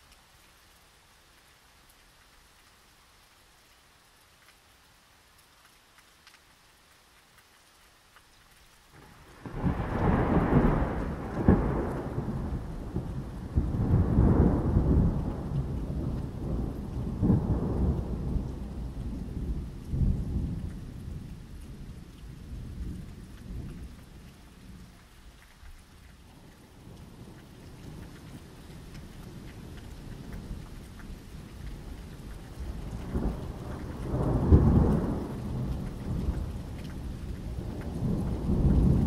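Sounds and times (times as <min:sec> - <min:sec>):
steady rain: 0:00.0 - 0:39.0
thunder rolling: 0:09.0 - 0:20.6.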